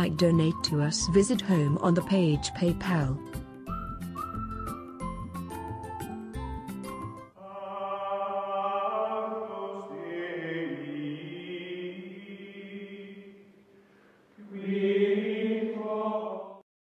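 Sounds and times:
choir-like chanted drone: 0:07.4 - 0:13.4, 0:14.4 - 0:16.6.

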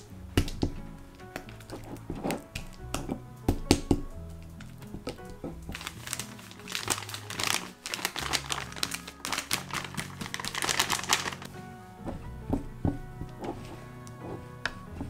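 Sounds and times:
background music: 0:00.0 - 0:15.0
powdered sugar pouring: 0:05.7 - 0:11.5
spatula scraping a glass bowl: 0:13.2 - 0:15.0.

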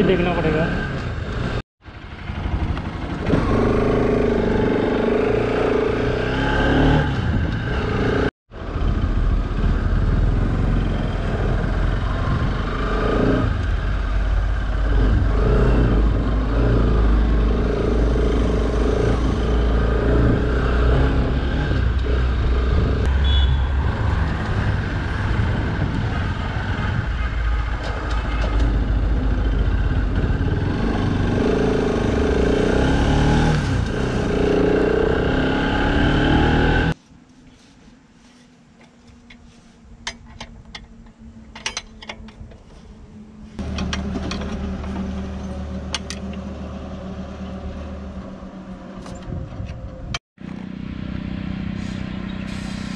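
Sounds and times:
motorcycle engine revving: 0:00.0 - 0:37.0
wind rumbling on microphone: 0:07.0 - 0:32.3, 0:47.7 - 0:50.6.

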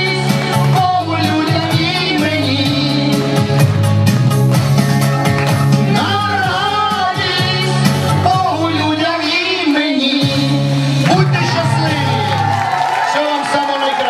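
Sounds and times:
woman and man singing: 0:00.0 - 0:03.4, 0:05.9 - 0:11.1
backing music with a beat: 0:00.0 - 0:12.6.

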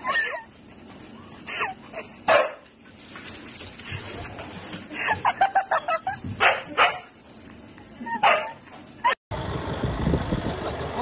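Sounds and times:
dog barking: 0:02.3 - 0:02.6, 0:06.4 - 0:07.1, 0:08.2 - 0:08.6.

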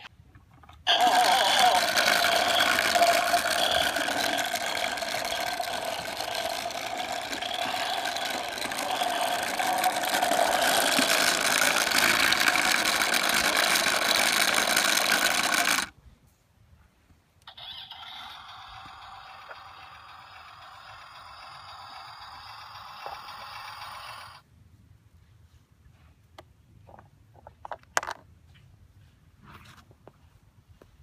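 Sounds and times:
toy tractor electronic engine sound: 0:00.0 - 0:15.9, 0:17.4 - 0:24.4
quiet outdoor background: 0:00.0 - 0:31.0.

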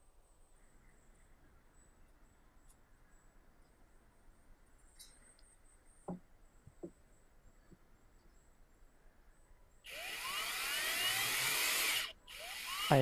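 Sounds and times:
power screwdriver motor whine: 0:09.9 - 0:13.0.

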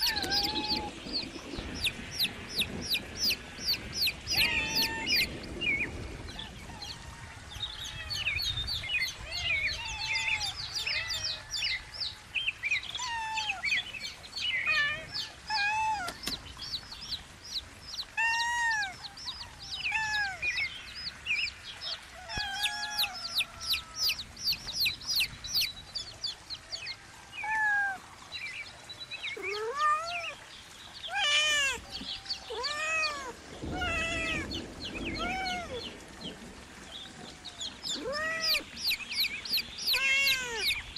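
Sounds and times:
kitten meowing: 0:00.0 - 0:00.9, 0:32.5 - 0:34.5, 0:38.0 - 0:38.6, 0:39.8 - 0:40.8
chicks peeping: 0:00.0 - 0:05.4, 0:22.4 - 0:26.4, 0:37.8 - 0:40.9.

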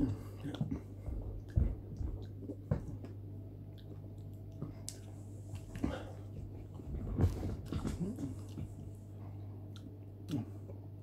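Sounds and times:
wet mouth clicks and smacks: 0:03.7 - 0:05.8.

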